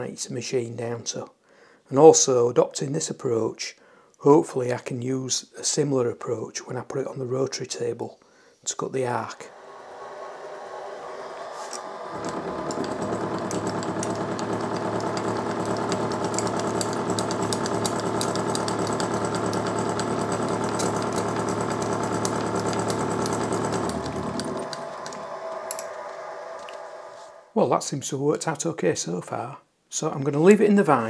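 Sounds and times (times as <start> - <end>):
milling machine cutting metal: 9.4 - 27.4.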